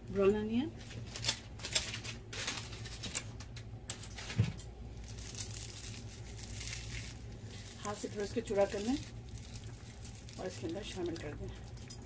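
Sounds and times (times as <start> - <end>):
low hum: 3.4 - 12.0
fried onions crackling: 4.2 - 12.0.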